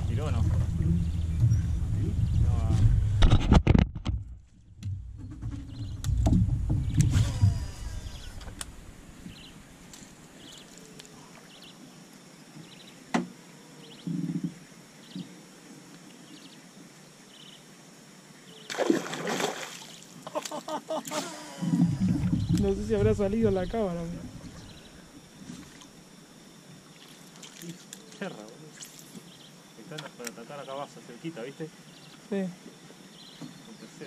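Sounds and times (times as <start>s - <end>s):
low rumble: 0.0s - 9.9s, 21.8s - 25.1s
loud splash on water: 18.7s - 20.5s
water lapping around boat: 18.7s - 26.2s, 26.8s - 29.4s.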